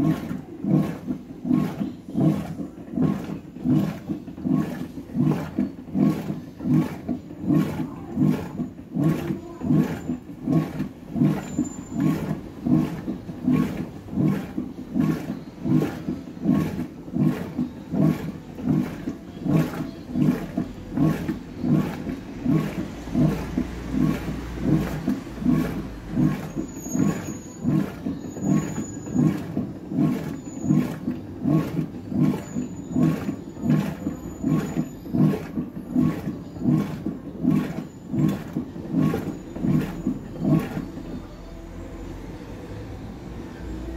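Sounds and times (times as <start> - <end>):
washing machine sloshing water: 0.0 - 43.9.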